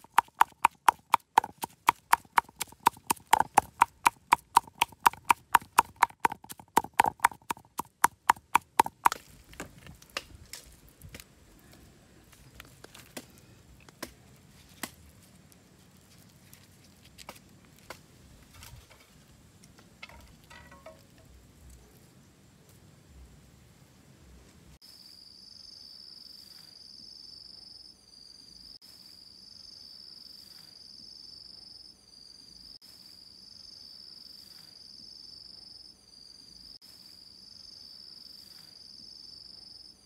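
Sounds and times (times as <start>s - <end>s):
cleaver chopping on wooden board: 0.0s - 9.3s.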